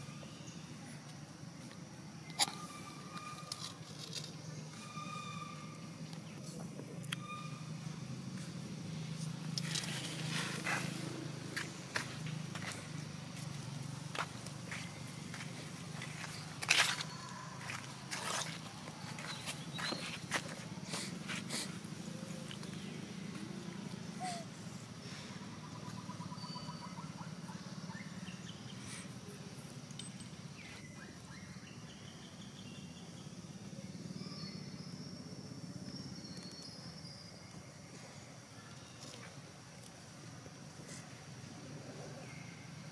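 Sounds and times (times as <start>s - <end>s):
birds chirping and trilling: 2.2s - 6.5s, 14.1s - 21.2s, 24.0s - 29.2s
footsteps on dry leaves: 9.6s - 21.5s.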